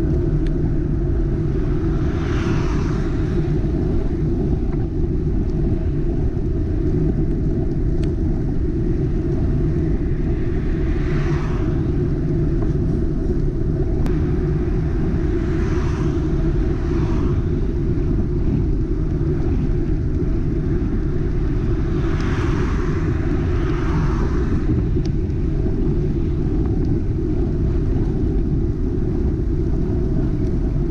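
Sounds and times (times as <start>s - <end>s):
wind rumble on microphone: 0.0s - 30.9s
tyre hiss of passing cars: 1.9s - 3.5s, 10.6s - 11.9s, 22.0s - 24.7s.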